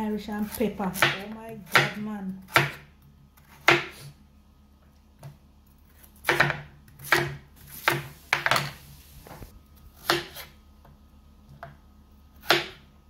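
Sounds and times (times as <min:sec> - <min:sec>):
knife chopping on wooden board: 0:00.4 - 0:04.1, 0:06.2 - 0:08.7, 0:10.0 - 0:10.5, 0:12.4 - 0:12.8.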